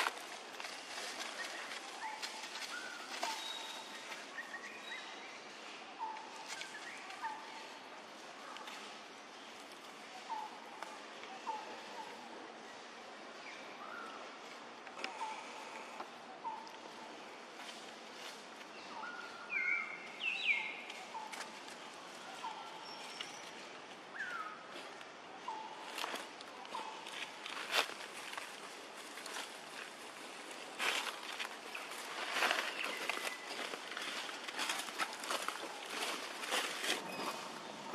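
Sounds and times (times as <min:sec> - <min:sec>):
steady outdoor hiss: 0:00.0 - 0:37.9
birds whistling: 0:01.4 - 0:05.4, 0:18.8 - 0:21.4, 0:31.7 - 0:37.9.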